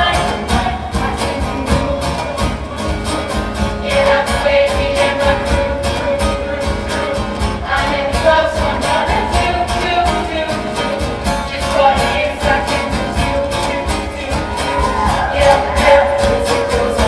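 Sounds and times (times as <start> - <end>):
choir singing pop song: 0.0 - 2.7, 3.6 - 17.0
live band with guitar and beat: 0.0 - 17.0.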